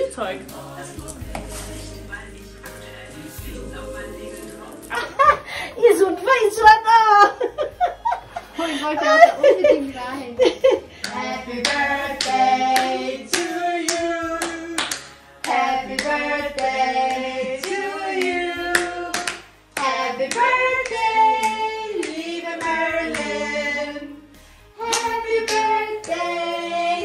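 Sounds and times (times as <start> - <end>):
group singing: 0.1 - 5.7, 11.0 - 27.0
people clapping in time: 11.0 - 16.8, 17.6 - 23.3, 24.8 - 25.7.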